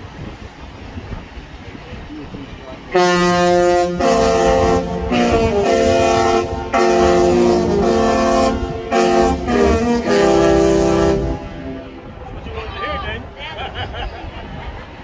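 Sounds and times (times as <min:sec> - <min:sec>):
ship's musical horn playing: 0:02.9 - 0:12.2.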